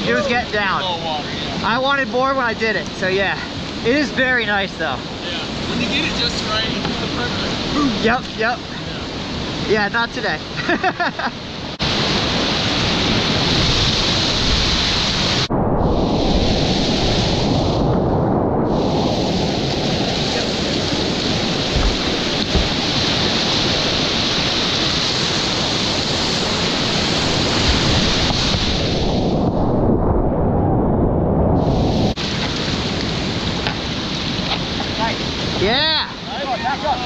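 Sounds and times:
whitewater rapids rushing: 32.2 - 37.0.

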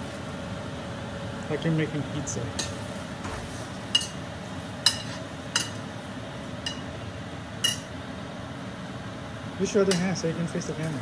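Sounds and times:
steady low hum: 0.0 - 11.0
metal utensil clinking on frying pan: 7.6 - 7.9.

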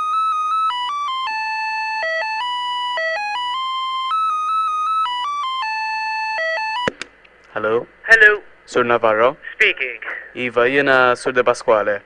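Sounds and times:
electronic hold music melody: 0.0 - 7.0.

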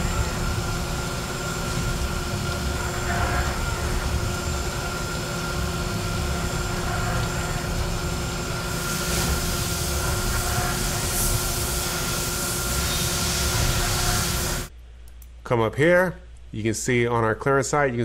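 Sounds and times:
constant machine tones: 0.0 - 14.7
coolant hiss: 0.0 - 14.7
milling machine cutting metal: 0.0 - 14.7.

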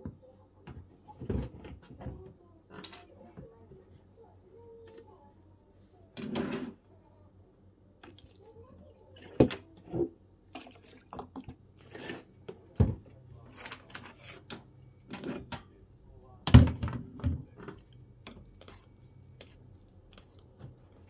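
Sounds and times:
liquid pouring and splashing: 10.5 - 12.0.

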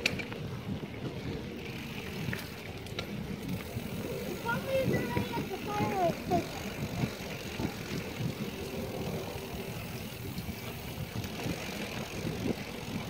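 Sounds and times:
bike rattles and knocks: 0.0 - 13.0
bike tyres rumbling on dirt: 0.0 - 13.0
wind on microphone: 0.0 - 13.0.

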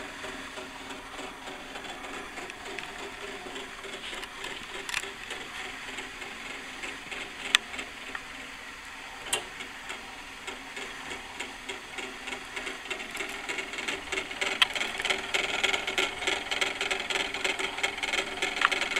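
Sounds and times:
clockwork gears clattering: 10.8 - 18.9.

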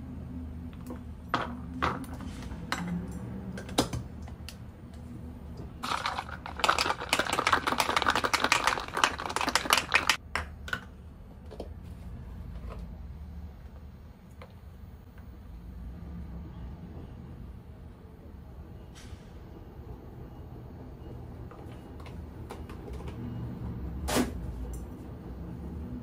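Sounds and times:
ice cubes clinking into metal tumbler: 5.8 - 10.2
ice rattling in shaken tumbler: 5.8 - 10.2.

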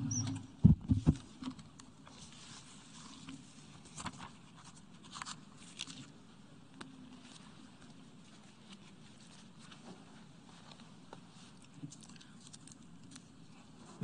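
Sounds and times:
paper rustling: 2.0 - 14.0.

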